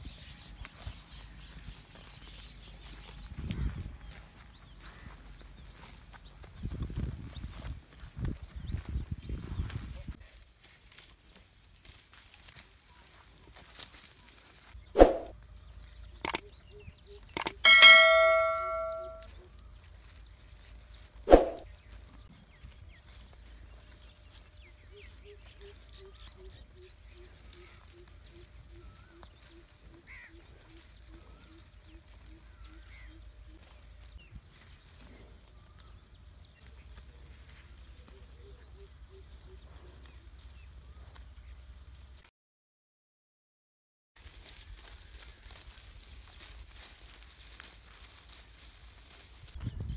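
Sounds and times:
outdoor field ambience: 0:00.0 - 0:42.2, 0:44.2 - 0:49.9
bell-like ding: 0:17.4 - 0:19.3.

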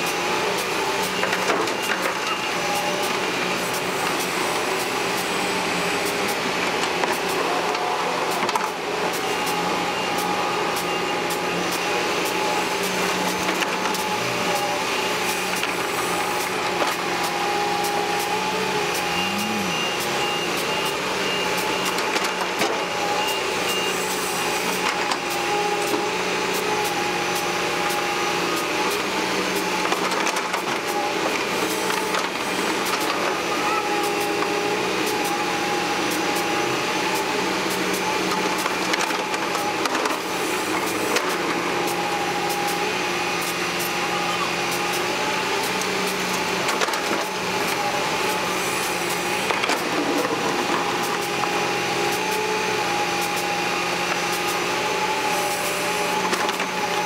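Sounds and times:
excavator engine and hydraulics: 0:00.0 - 0:57.0.

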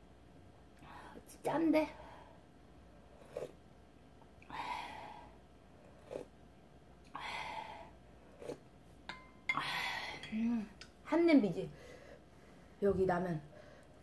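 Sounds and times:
slurping broth: 0:03.1 - 0:03.6, 0:05.9 - 0:06.3.

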